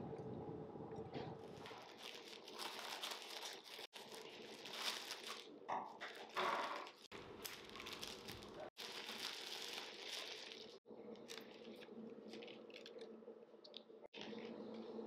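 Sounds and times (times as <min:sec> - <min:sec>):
plastic wrapping crinkling: 0:01.4 - 0:13.1.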